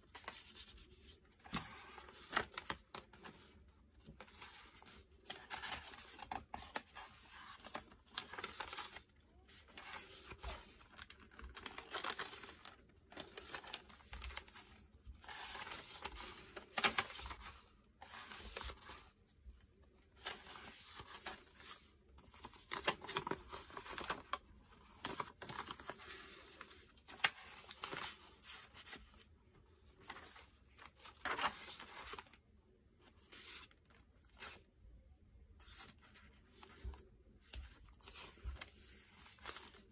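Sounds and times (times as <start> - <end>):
paper pages rustling: 0.0 - 32.4, 33.0 - 34.7, 35.6 - 39.9.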